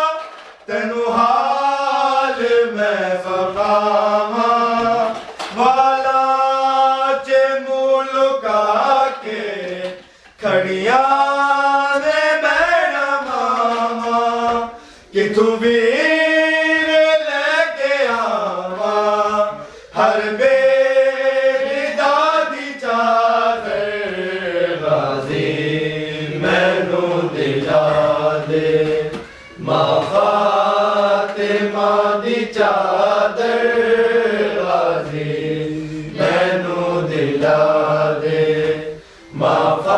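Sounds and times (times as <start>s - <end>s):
man chanting a lament: 0.0s - 39.9s
man breathing: 10.0s - 10.4s, 14.7s - 15.1s, 19.6s - 20.0s, 39.0s - 39.4s.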